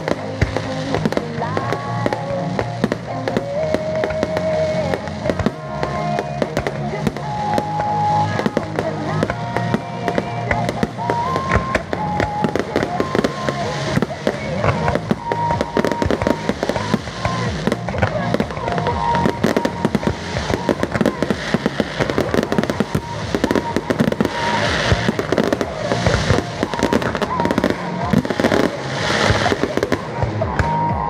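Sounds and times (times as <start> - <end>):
fireworks bursting and crackling: 0.0 - 31.0
music: 0.0 - 31.0.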